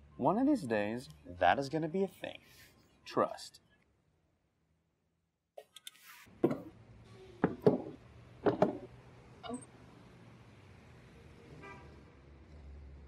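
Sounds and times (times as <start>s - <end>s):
heavy knocks at a door: 7.4s - 8.9s.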